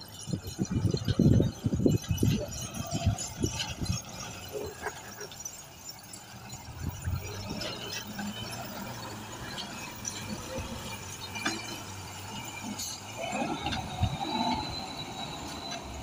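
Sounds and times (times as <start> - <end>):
truck engine hum: 0.0 - 16.0
squeaks creaks and clanks of truck body: 0.2 - 16.0
squeal and groan: 0.3 - 16.0.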